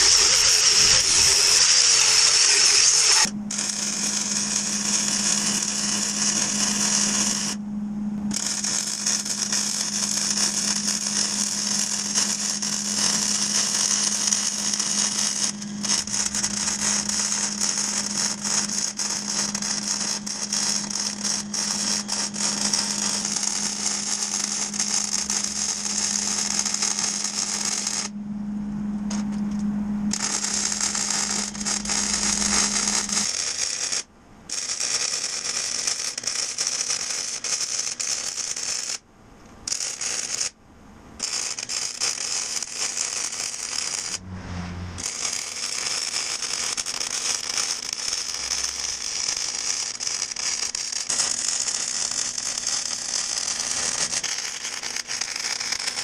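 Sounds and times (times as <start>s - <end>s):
welding arc crackling: 0.0s - 7.6s, 8.2s - 28.2s, 29.1s - 40.6s, 41.2s - 44.2s, 45.0s - 56.0s
low hum: 3.0s - 33.5s, 44.0s - 45.3s.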